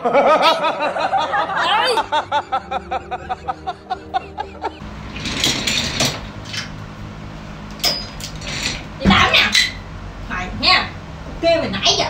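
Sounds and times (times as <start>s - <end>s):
snickering laughs: 0.0s - 4.8s.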